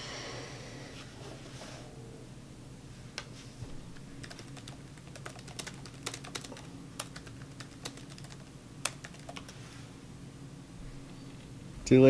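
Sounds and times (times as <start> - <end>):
faint steady low hum: 0.0 - 12.0
computer keyboard key clicks: 4.2 - 9.5.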